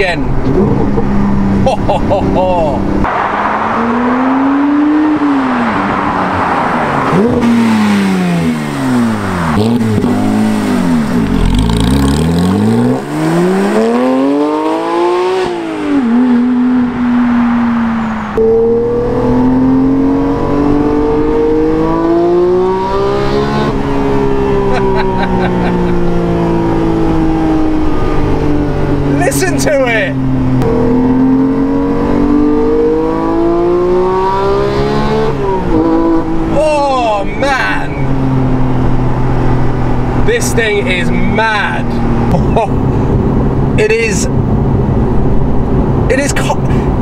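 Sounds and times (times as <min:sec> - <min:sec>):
car engine revving in cabin: 0:00.4 - 0:43.8
sports car accelerating past: 0:02.8 - 0:29.2, 0:30.1 - 0:36.6, 0:37.9 - 0:40.3.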